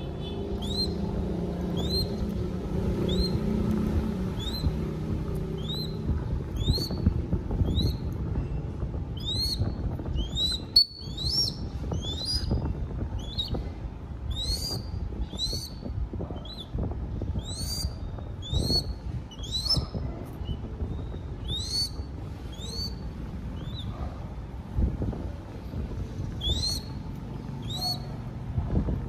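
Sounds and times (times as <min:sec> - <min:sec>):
bird chick begging calls: 0:05.6 - 0:07.0, 0:09.2 - 0:12.6, 0:26.4 - 0:26.9.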